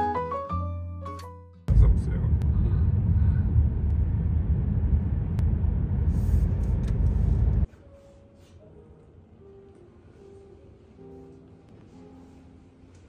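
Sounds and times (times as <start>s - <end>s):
low rumbling traffic noise: 1.7s - 7.7s.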